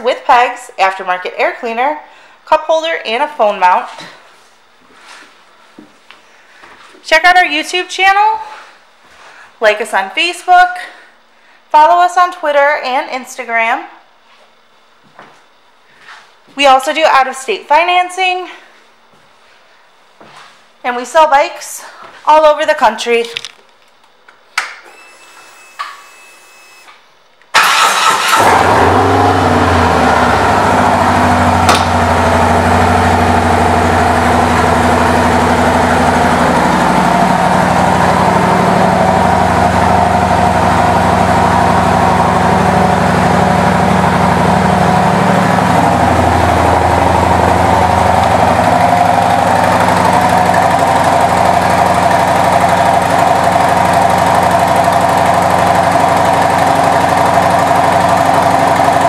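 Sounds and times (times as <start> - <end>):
motorcycle engine starting and idling: 27.5 - 59.0.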